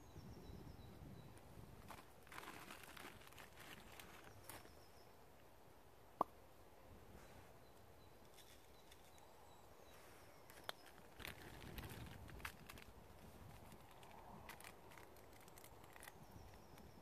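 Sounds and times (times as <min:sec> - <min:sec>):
plastic bag rustling: 0:01.8 - 0:04.7, 0:10.5 - 0:16.2.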